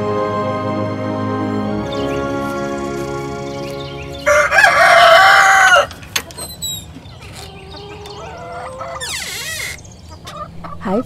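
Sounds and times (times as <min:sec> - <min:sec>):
soft background music: 0:00.0 - 0:05.9
chicken calls: 0:01.8 - 0:11.0
rooster crowing: 0:04.2 - 0:06.0.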